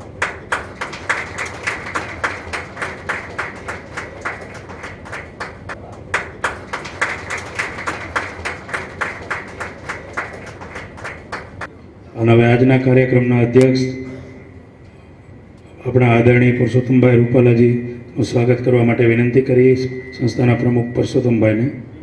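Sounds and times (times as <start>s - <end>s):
audience clapping in rhythm: 0.0s - 11.7s.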